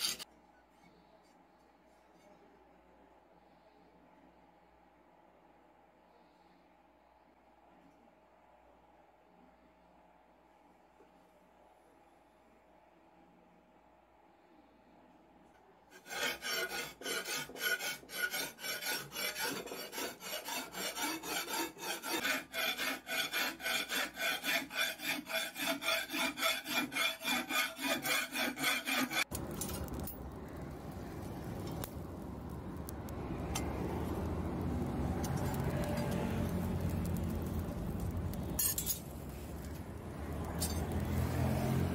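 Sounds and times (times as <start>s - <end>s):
hand file scraping steel: 0.0s - 0.3s, 15.9s - 29.3s
forge fire rushing: 29.3s - 41.9s.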